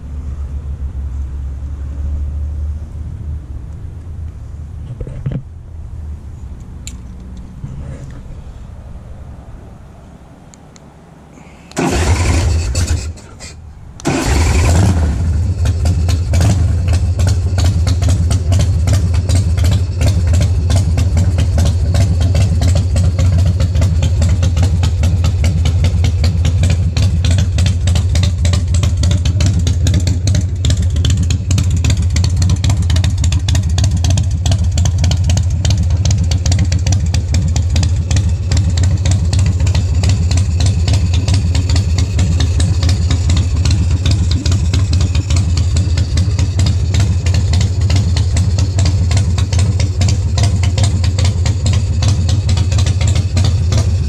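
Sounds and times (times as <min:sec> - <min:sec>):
motorcycle engine starting and idling: 0:11.7 - 0:54.0.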